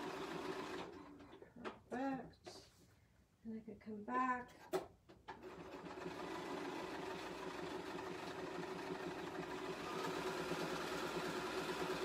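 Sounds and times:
sewing machine stitching: 0.0s - 1.4s, 5.3s - 12.0s.

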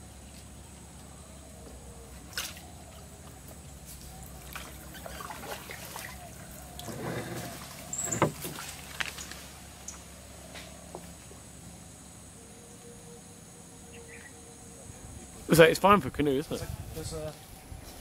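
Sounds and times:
paddle pulling through water: 2.2s - 9.8s
paddle knocking on canoe: 6.8s - 8.7s.

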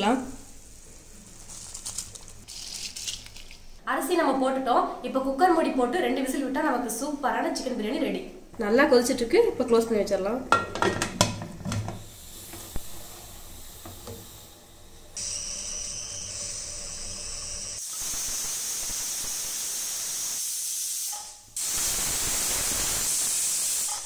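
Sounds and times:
steam hissing: 12.0s - 24.0s
pressure cooker steam whistle: 15.2s - 24.0s.

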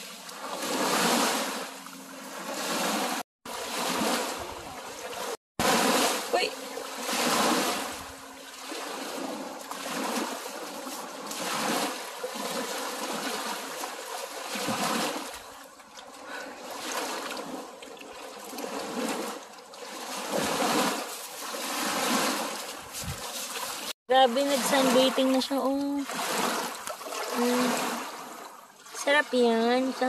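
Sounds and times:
creek water splashing over rocks: 8.4s - 29.0s.

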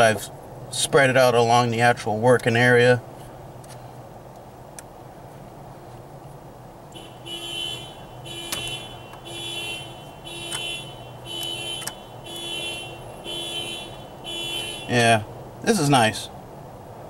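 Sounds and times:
electronic alarm beeping: 7.0s - 14.9s.

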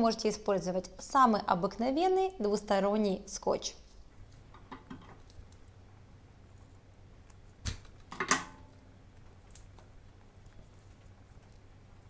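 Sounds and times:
faint tape rustling: 3.9s - 12.0s
tape crackling: 4.2s - 12.0s.

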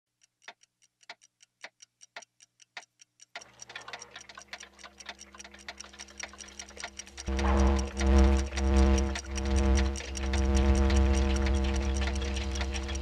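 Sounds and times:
clock ticking: 0.1s - 13.0s
steady low hum: 4.5s - 13.0s.

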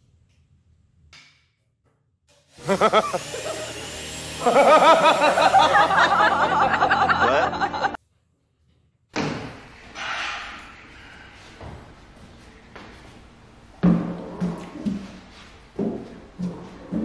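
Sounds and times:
loud wavering laughter: 2.6s - 8.0s.

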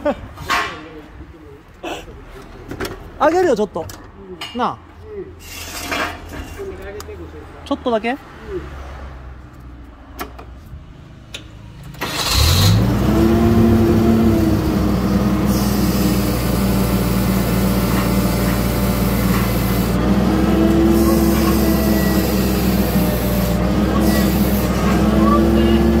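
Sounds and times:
forklift engine running: 11.9s - 26.0s.

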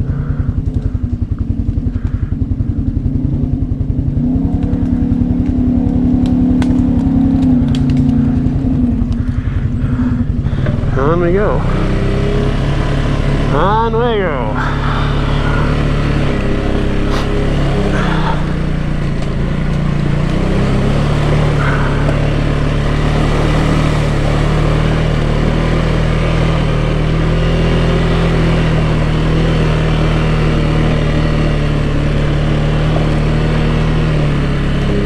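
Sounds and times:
atv engine running: 0.0s - 35.0s.

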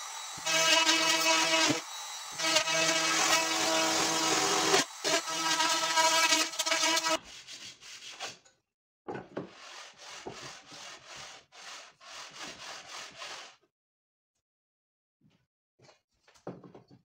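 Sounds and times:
hand plane shaving wood: 9.5s - 13.5s.

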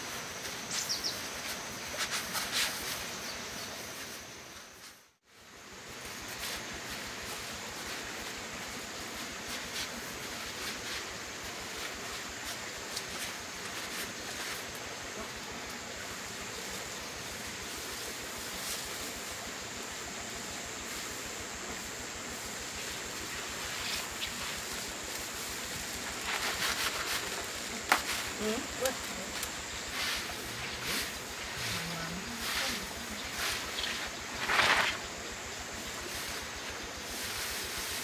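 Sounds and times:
dry straw rustling: 0.0s - 5.0s, 5.7s - 38.0s
steady outdoor hiss: 0.0s - 38.0s
faint crackling of grain: 20.8s - 38.0s.

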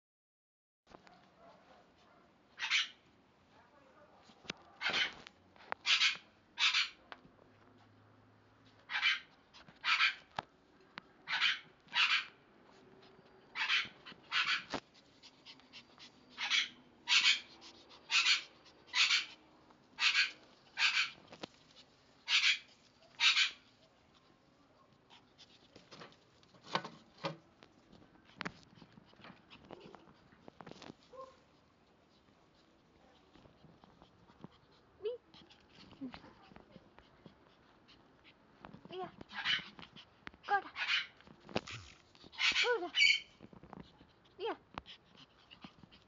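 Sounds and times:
small dog yapping: 1.1s - 3.0s, 4.6s - 5.2s, 5.8s - 7.0s, 8.9s - 10.3s, 11.2s - 12.4s, 13.5s - 14.8s, 15.4s - 19.4s, 20.0s - 21.2s, 22.2s - 23.7s, 31.0s - 31.4s, 39.2s - 39.8s, 40.4s - 43.4s.

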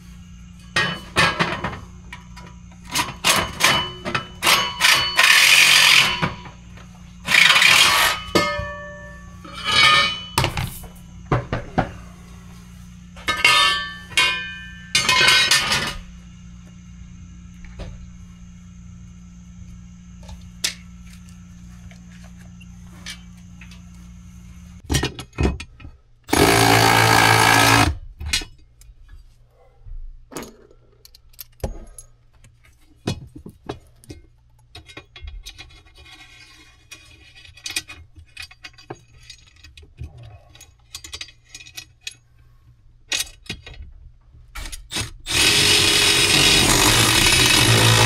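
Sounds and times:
power tool running: 4.4s - 6.4s, 7.2s - 8.3s, 26.3s - 28.0s, 44.9s - 48.0s
clicks and knocks of tools: 30.3s - 42.2s, 43.1s - 45.1s.

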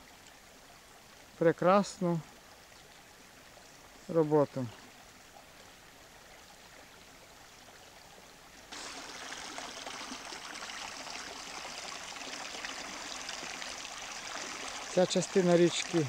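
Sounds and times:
stream rushing over stones: 8.6s - 16.0s.

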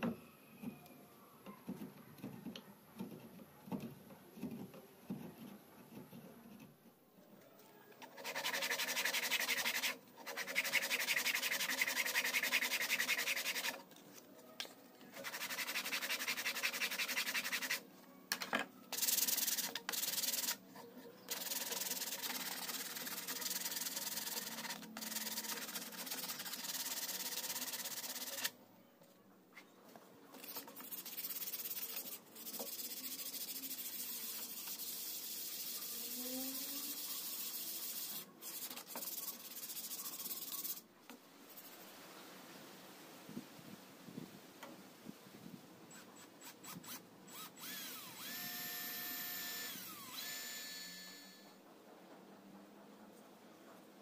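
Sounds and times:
sandpaper rubbing wood: 8.1s - 13.8s, 15.2s - 17.8s, 19.0s - 20.6s, 21.3s - 28.5s, 30.4s - 40.8s.

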